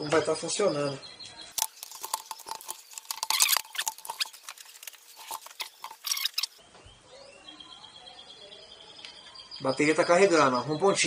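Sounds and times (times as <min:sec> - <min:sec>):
plastic clicks and rustling: 0:01.6 - 0:06.6.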